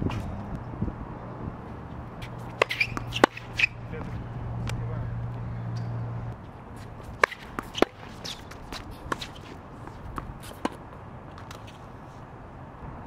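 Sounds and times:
brief high squeaks: 0:02.6 - 0:03.8.

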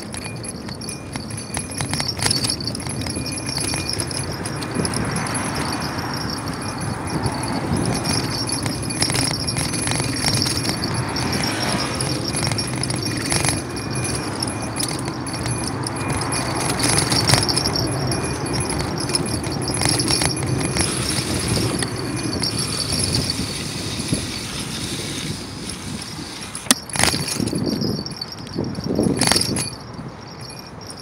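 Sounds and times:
bicycle rattling over paving: 0:00.0 - 0:31.0
rushing noise of riding: 0:00.0 - 0:31.0.

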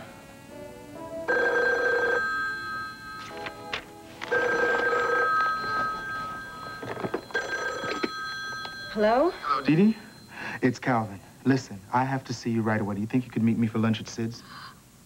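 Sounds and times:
soft background music: 0:00.0 - 0:11.1
telephone bell ringing: 0:01.3 - 0:10.5.

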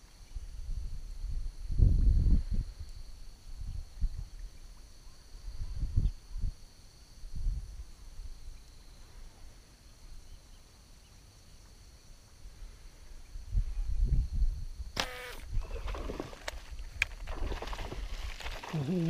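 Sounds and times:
man humming: 0:18.7 - 0:19.0.

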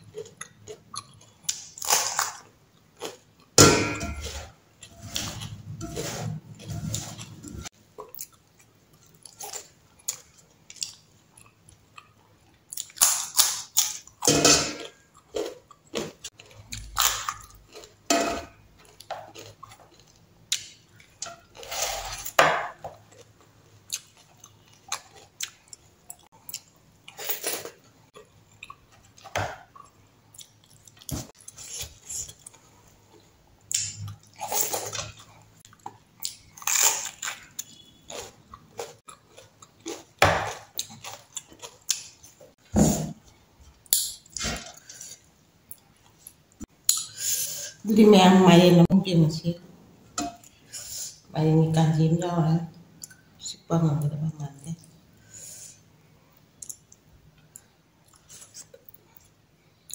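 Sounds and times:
crunchy chewing: 0:18.8 - 0:42.5.

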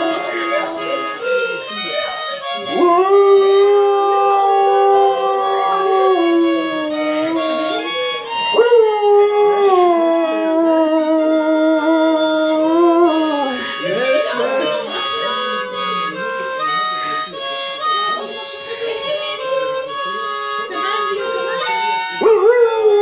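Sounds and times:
harmonica chords: 0:00.0 - 0:23.0
dog howling: 0:02.6 - 0:14.7, 0:22.2 - 0:23.0.

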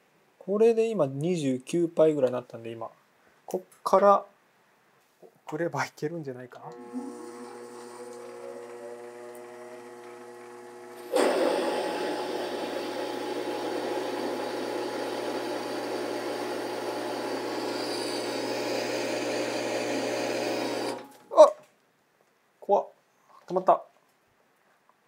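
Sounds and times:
drill grinding into steel: 0:06.7 - 0:21.2
lathe motor whining: 0:06.7 - 0:21.2.

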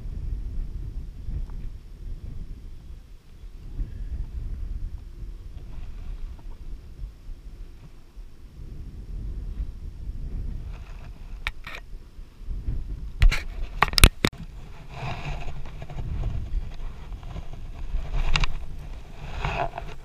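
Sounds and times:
scraping and rustling: 0:10.6 - 0:11.8, 0:13.2 - 0:20.0
sharp clicks and knocks: 0:13.2 - 0:14.5.

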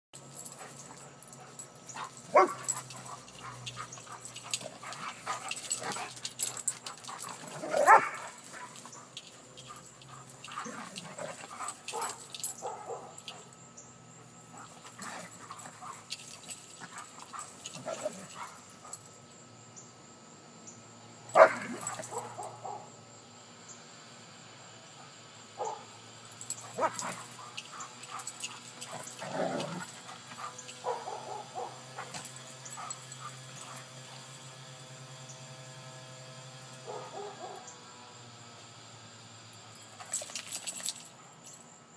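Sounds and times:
dogs barking: 0:00.5 - 0:13.6, 0:14.5 - 0:19.0, 0:21.3 - 0:22.9, 0:25.6 - 0:25.9, 0:26.5 - 0:34.1, 0:36.8 - 0:37.8.

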